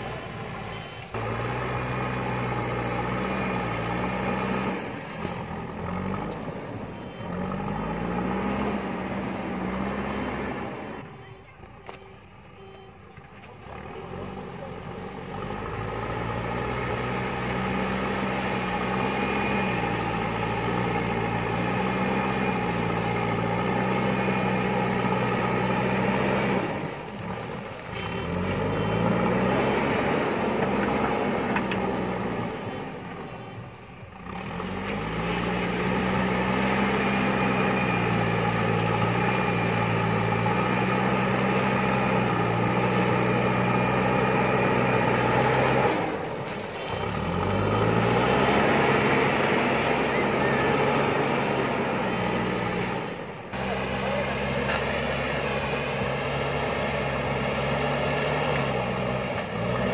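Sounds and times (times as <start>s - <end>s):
diesel engine running under load: 0.0s - 59.9s
bucket pushing soil: 45.3s - 50.6s.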